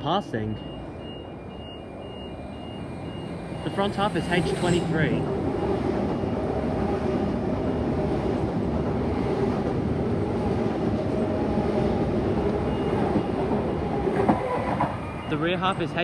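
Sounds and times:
faint steady tones: 0:00.0 - 0:06.9
train wheels rumbling on rails: 0:03.0 - 0:16.0.

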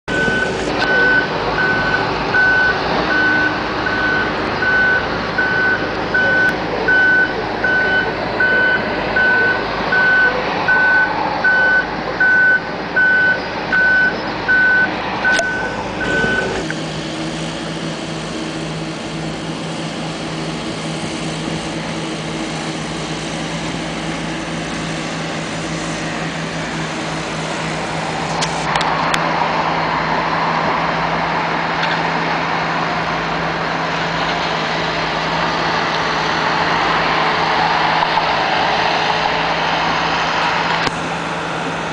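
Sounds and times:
diesel engine drone: 0:00.0 - 0:41.9
reversing alarm beeping: 0:00.1 - 0:16.7.

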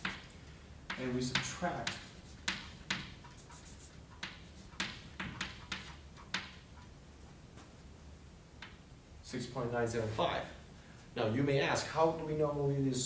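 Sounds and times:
chalk tapping on blackboard: 0:00.0 - 0:06.9.

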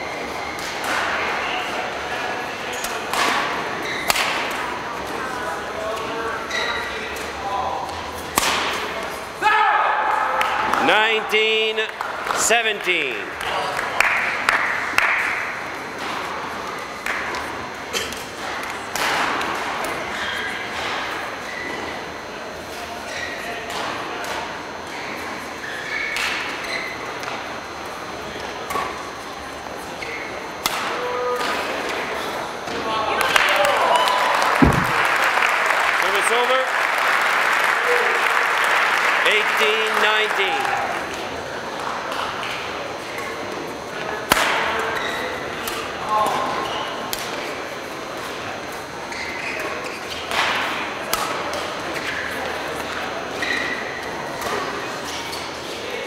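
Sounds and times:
murmur of large hall: 0:00.0 - 0:56.0
racket hitting shuttlecock: 0:30.6 - 0:31.6, 0:34.6 - 0:35.0
rackets striking shuttlecock: 0:34.6 - 0:35.0
shoes squeaking on court floor: 0:34.6 - 0:35.0, 0:49.0 - 0:50.3.

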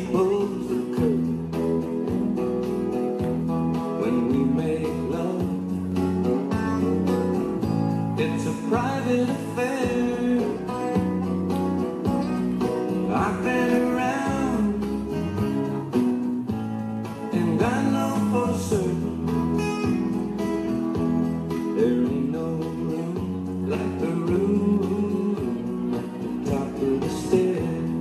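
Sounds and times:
person singing: 0:00.0 - 0:01.6, 0:03.7 - 0:06.0, 0:08.2 - 0:11.2, 0:12.2 - 0:15.9, 0:17.2 - 0:20.2, 0:21.5 - 0:28.0
country song with guitar: 0:00.0 - 0:28.0.

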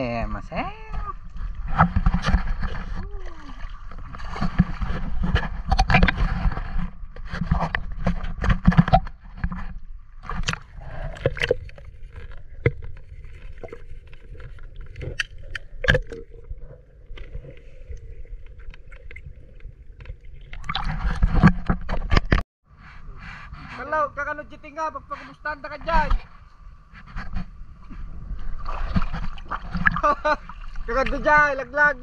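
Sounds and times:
water splashing: 0:00.7 - 0:22.4, 0:28.3 - 0:32.0
underwater clicks and knocks: 0:00.9 - 0:03.0, 0:03.9 - 0:16.5, 0:18.4 - 0:22.4.

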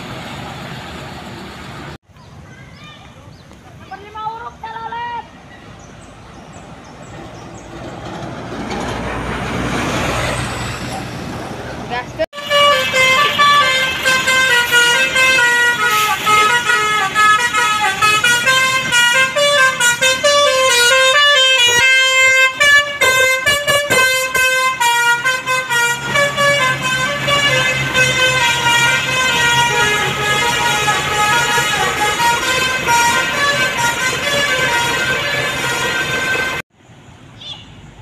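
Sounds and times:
musical air horn tune: 0:12.3 - 0:36.6.

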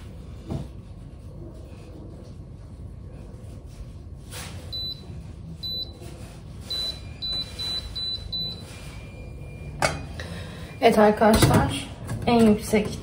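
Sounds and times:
hob control beeps: 0:06.7 - 0:11.2.

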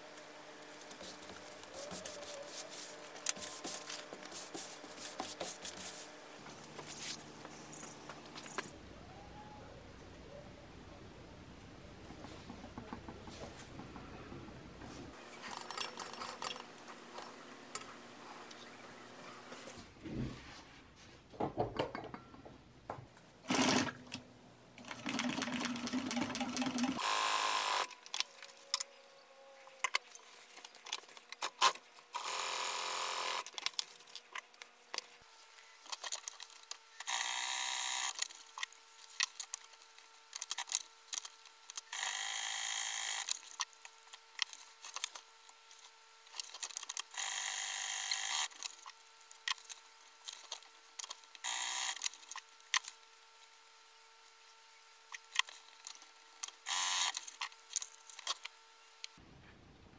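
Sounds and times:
sewing machine stitching leather: 0:23.5 - 0:24.0.

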